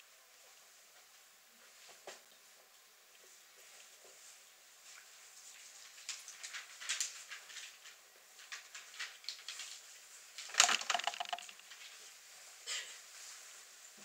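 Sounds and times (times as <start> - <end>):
papers rustling and clicking: 5.9 - 12.0.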